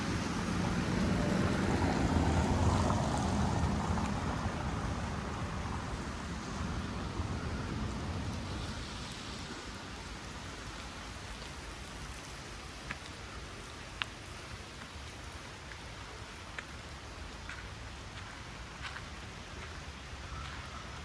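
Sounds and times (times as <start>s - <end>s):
steady rain falling: 0.0s - 21.0s.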